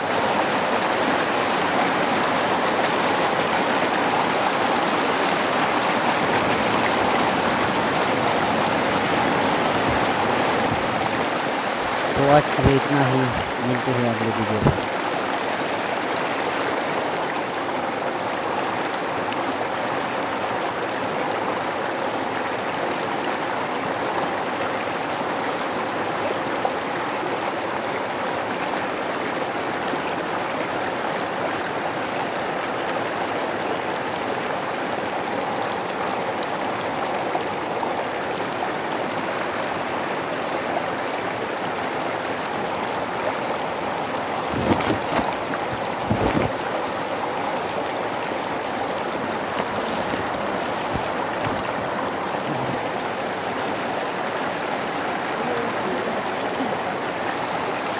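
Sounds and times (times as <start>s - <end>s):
river water rushing over rocks: 0.0s - 57.9s.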